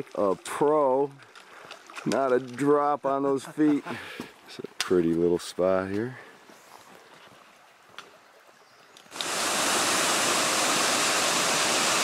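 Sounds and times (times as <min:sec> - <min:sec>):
small waterfall rushing: 0:09.1 - 0:12.0.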